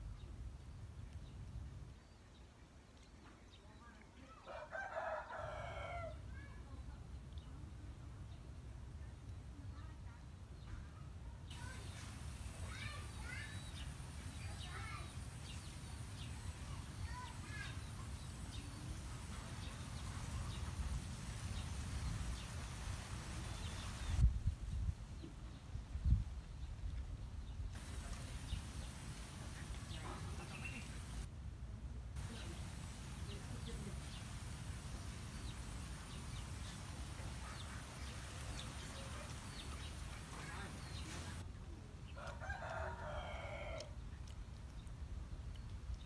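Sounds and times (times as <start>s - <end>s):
wind rumbling on microphone: 11.6s - 41.5s.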